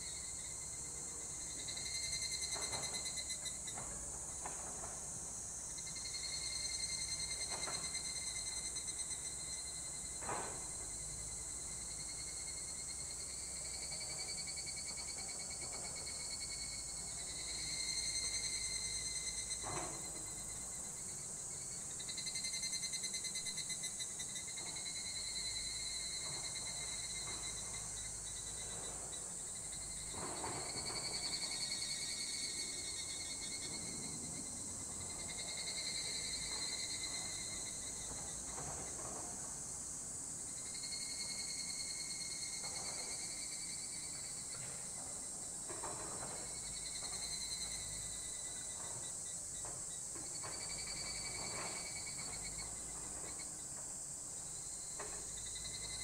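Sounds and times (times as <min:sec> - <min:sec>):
insect chorus shrilling: 0:00.0 - 0:56.0
lower-pitched insect trill: 0:00.0 - 0:56.0.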